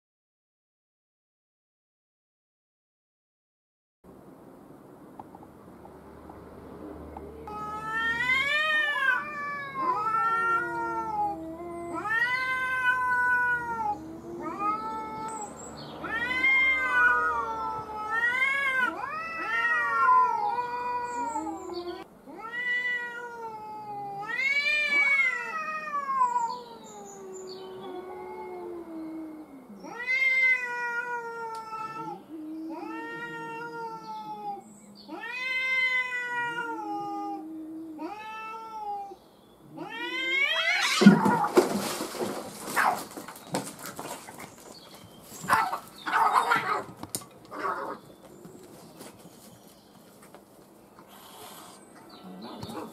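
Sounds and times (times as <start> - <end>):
cats yowling: 7.2 - 43.2, 45.4 - 48.0.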